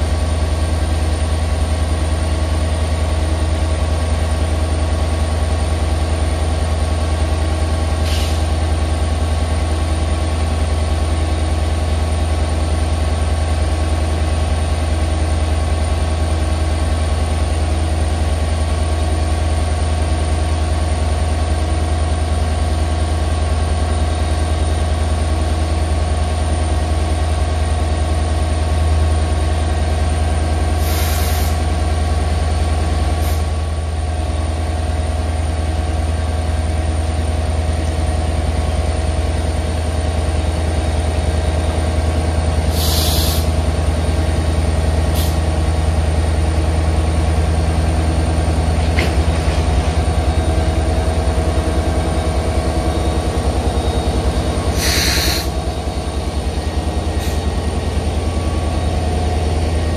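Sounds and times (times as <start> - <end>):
diesel locomotive engines rumbling: 0.0 - 59.9
air hiss bursts: 30.8 - 31.6, 42.7 - 43.5, 54.8 - 55.5.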